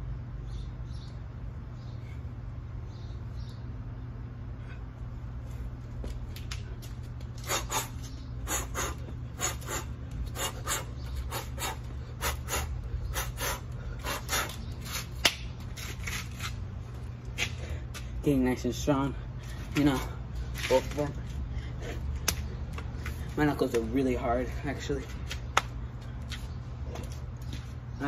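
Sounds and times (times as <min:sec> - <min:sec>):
steady low hum: 0:00.0 - 0:28.0
person breathing hard: 0:07.4 - 0:14.6, 0:21.4 - 0:22.2.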